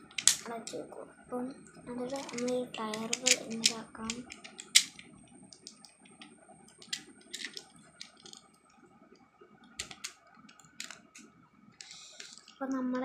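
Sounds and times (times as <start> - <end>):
plastic toy parts clicking: 0.1 - 0.8, 2.1 - 8.5, 9.8 - 12.5.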